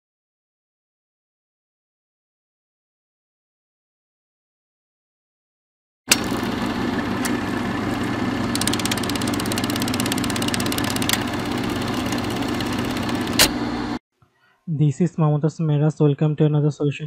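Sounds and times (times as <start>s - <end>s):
motor running: 6.1s - 14.0s
fast ticking rattle: 8.5s - 13.4s
sharp click: 8.5s - 13.6s.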